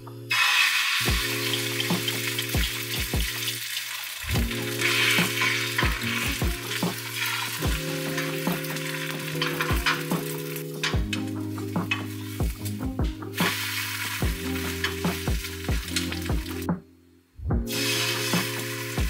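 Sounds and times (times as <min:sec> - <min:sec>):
light background music: 0:00.0 - 0:19.0
egg sizzling in a pan: 0:00.3 - 0:10.6, 0:13.3 - 0:16.6, 0:17.7 - 0:19.0.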